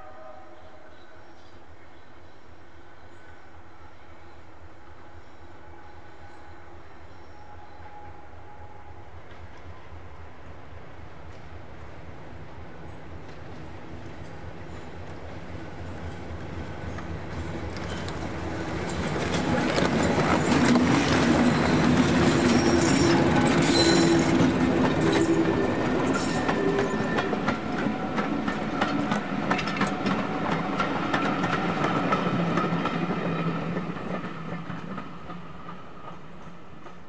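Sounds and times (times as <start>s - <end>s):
diesel locomotive engine: 7.5s - 37.0s
wheels clicking over rail joints: 16.9s - 33.0s.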